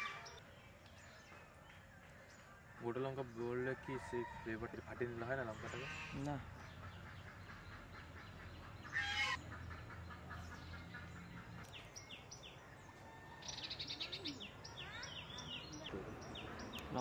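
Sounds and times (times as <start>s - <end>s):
birds chirping and calling: 0.0s - 17.0s.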